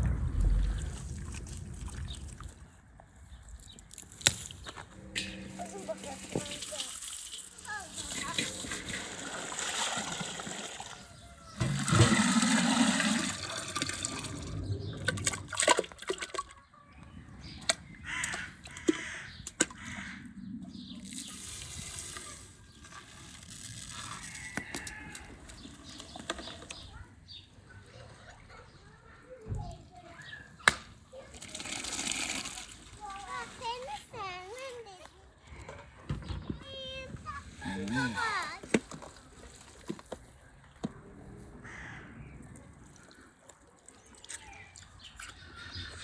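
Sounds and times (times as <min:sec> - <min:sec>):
water bubbling: 0:00.0 - 0:02.8, 0:04.9 - 0:16.5
salt pouring into water: 0:05.9 - 0:16.5, 0:21.0 - 0:26.2, 0:31.3 - 0:33.8.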